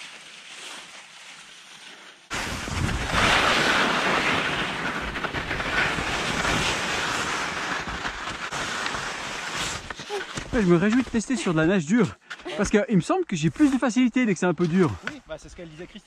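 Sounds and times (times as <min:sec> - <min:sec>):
skis hissing over snow: 0:00.0 - 0:11.6.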